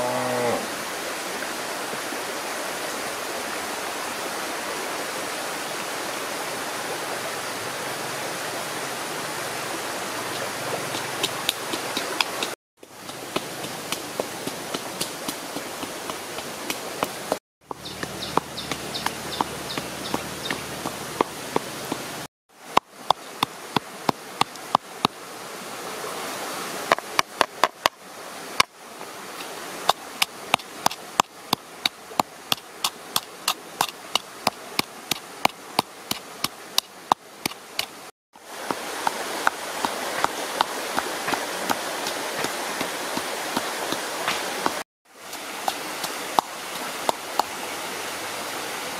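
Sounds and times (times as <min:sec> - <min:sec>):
steady rushing hiss: 0:05.1 - 0:48.9.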